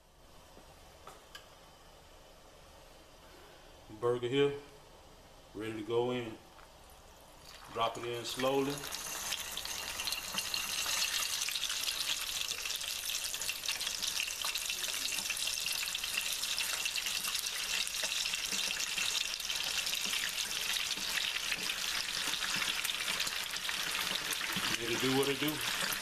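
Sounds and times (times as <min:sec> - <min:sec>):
oil sizzling deep frying: 0:07.4 - 0:26.0.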